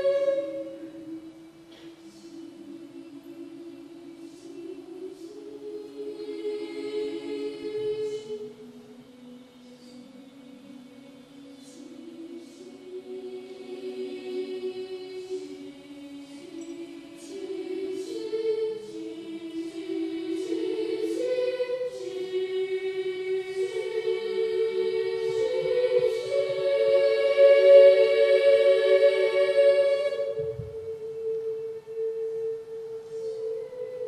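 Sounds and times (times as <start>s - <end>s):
children's choir singing: 0.0s - 34.0s.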